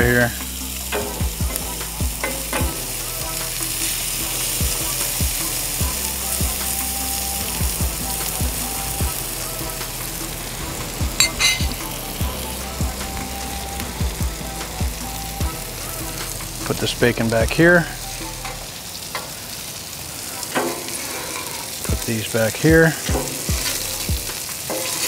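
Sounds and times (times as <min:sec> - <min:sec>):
food sizzling on a griddle: 0:00.0 - 0:25.0
metallic clatter: 0:11.2 - 0:11.8
metal spatulas scraping steel: 0:11.2 - 0:11.9.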